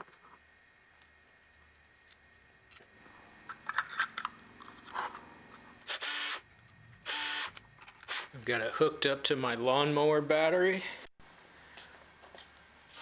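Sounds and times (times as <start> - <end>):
cordless drill driving screws: 5.8 - 6.4, 7.0 - 8.3.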